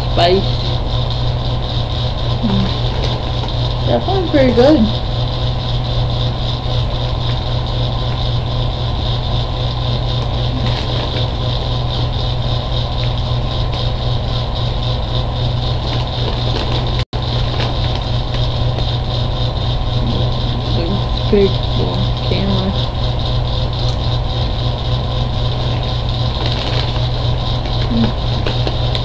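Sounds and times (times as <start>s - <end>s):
steady low hum: 0.0s - 29.0s
popcorn being chewed: 2.3s - 3.8s, 9.9s - 14.0s, 15.7s - 22.6s, 25.4s - 29.0s.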